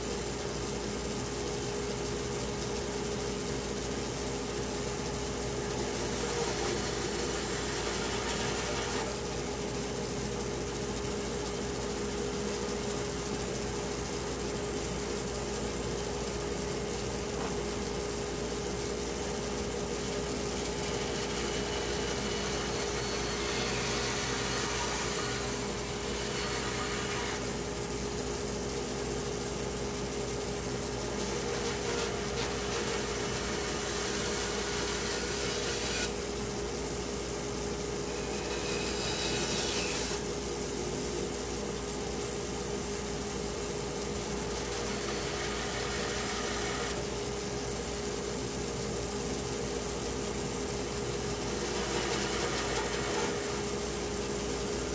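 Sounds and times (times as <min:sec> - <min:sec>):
power saw cutting wood: 0:05.8 - 0:09.2, 0:20.9 - 0:27.5, 0:31.2 - 0:36.2, 0:38.1 - 0:40.3, 0:44.7 - 0:47.1, 0:51.5 - 0:53.8.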